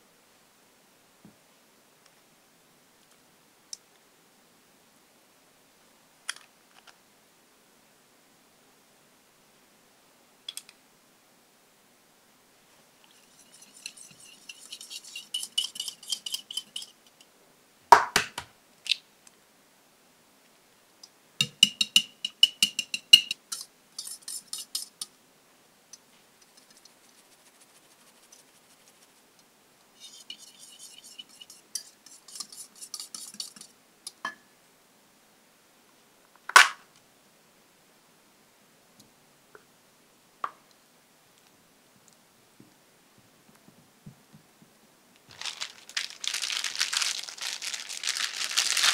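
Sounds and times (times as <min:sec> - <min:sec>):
whisk beating against glass: 0:13.2 - 0:17.0, 0:21.4 - 0:25.1, 0:30.0 - 0:33.7
spoon clinking on glass bowl: 0:21.4 - 0:25.0.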